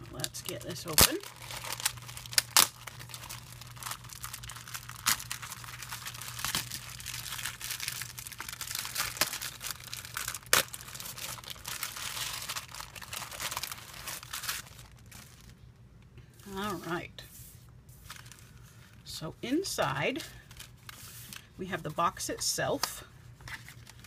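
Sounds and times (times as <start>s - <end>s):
cellophane bag crinkling: 0.2s - 15.6s, 18.0s - 19.1s.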